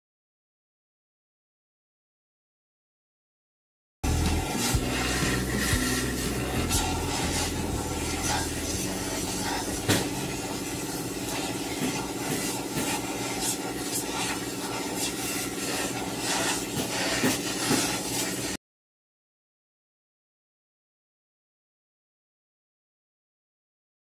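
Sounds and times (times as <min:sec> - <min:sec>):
steady machine hum: 0:04.0 - 0:18.6
torch flame roaring: 0:04.1 - 0:18.6.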